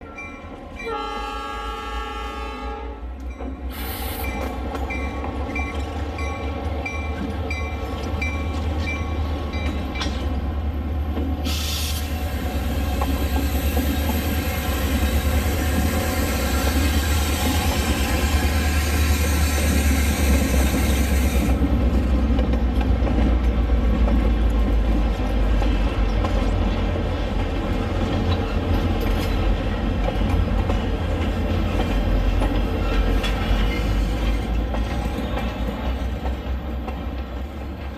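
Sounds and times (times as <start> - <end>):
locomotive horn chord: 0.8 - 3.2.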